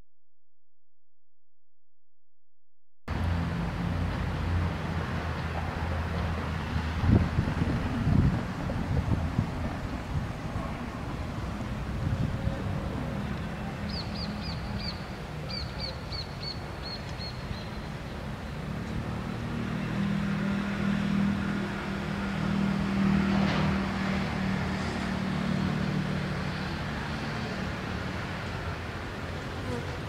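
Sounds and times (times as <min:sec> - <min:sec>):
bird chirping: 0:13.9 - 0:17.9.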